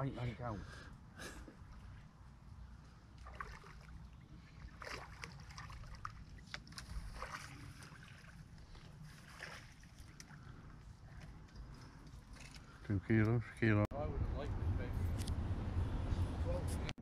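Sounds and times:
fish splashing: 3.2 - 10.5
steady low rumble: 10.4 - 16.9.

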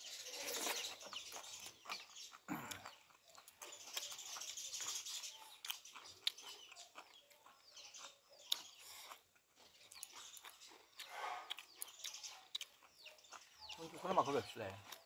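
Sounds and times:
chewing: 0.0 - 15.0.

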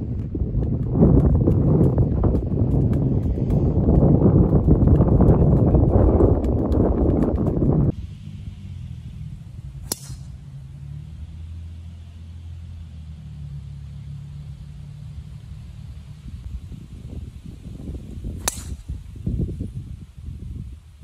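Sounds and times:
wind buffeting microphone: 0.0 - 8.0, 15.0 - 21.0
low steady rumble: 0.0 - 21.0
golf driver striking ball: 9.8 - 10.4, 18.4 - 19.0.

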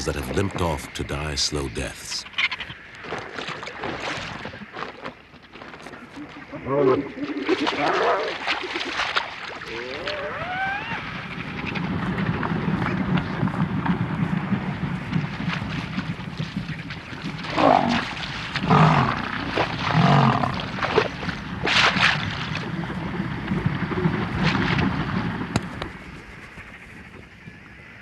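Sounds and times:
vultures wings flapping: 7.5 - 27.3
lioness snarling and growling: 17.4 - 21.9.

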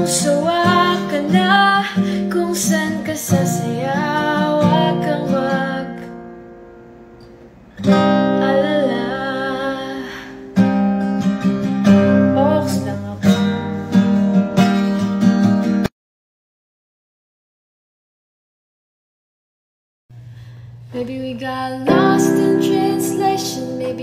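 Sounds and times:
woman singing: 0.0 - 6.2, 7.9 - 10.5, 12.1 - 13.6, 20.9 - 24.0
acoustic guitar strumming: 0.0 - 15.9, 21.8 - 24.0.

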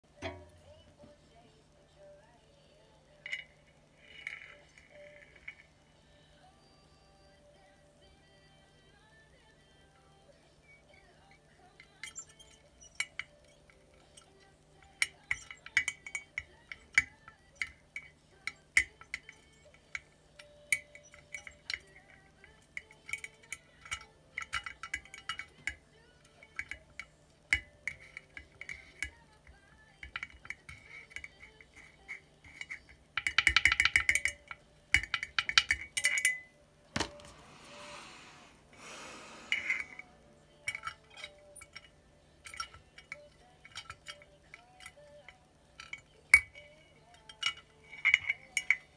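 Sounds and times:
plastic parts clinking in glass bottle: 3.2 - 5.7, 11.8 - 37.3, 39.5 - 48.9.

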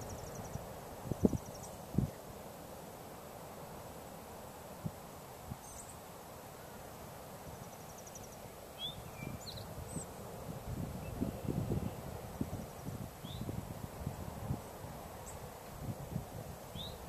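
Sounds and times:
wind bumps on microphone: 9.2 - 15.0.

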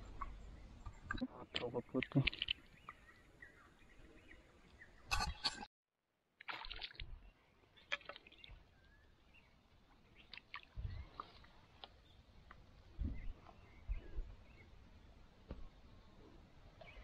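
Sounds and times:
water splashing and sloshing: 0.9 - 3.2, 6.4 - 13.5.

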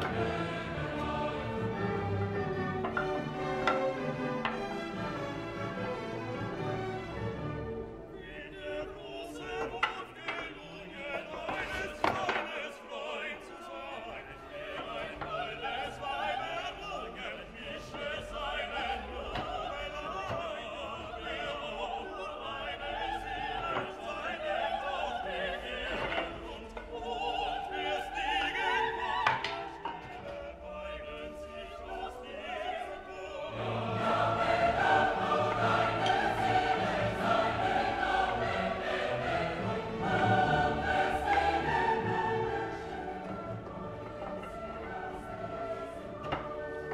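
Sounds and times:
orchestra playing: 0.0 - 9.6, 28.2 - 46.9
operatic singing: 0.0 - 46.9.

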